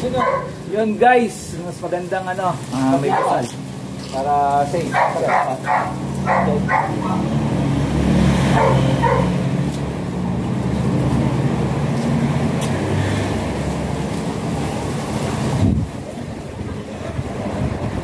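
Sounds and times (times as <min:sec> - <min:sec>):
dog barking: 0:00.1 - 0:00.6, 0:03.0 - 0:03.5, 0:04.9 - 0:07.4, 0:08.5 - 0:09.4.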